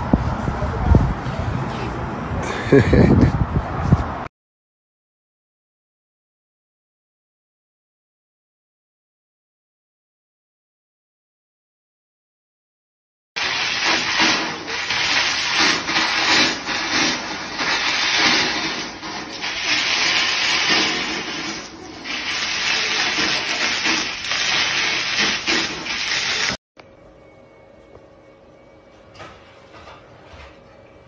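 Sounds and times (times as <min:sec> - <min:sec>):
water gushing onto a flooded floor: 0:13.4 - 0:26.6.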